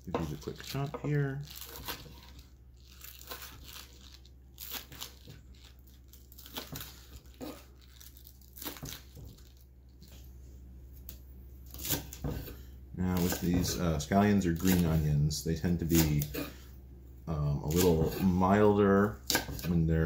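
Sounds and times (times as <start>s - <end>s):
knife slicing scallions on board: 11.8s - 13.8s.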